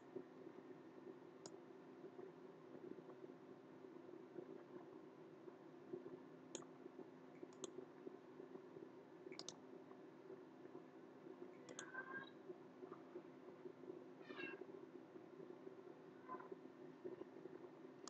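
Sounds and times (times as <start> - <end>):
steady low hum: 0.0 - 18.0
computer mouse clicks: 6.5 - 6.7, 7.4 - 7.8, 9.3 - 9.6, 11.6 - 12.3.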